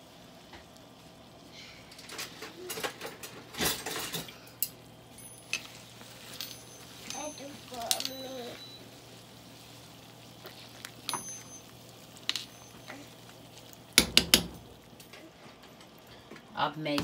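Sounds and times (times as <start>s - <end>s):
pot simmering with faint hiss: 0.0s - 17.0s
metal utensil clinking on pot: 7.9s - 8.2s, 11.0s - 11.7s.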